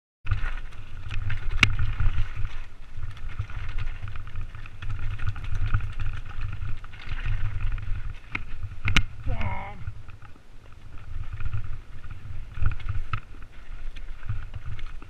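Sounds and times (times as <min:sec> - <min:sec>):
bike rattles and knocks: 0:00.3 - 0:15.0
bike tyres rolling over stones: 0:00.3 - 0:15.0
wind rumble on microphone: 0:00.3 - 0:15.0.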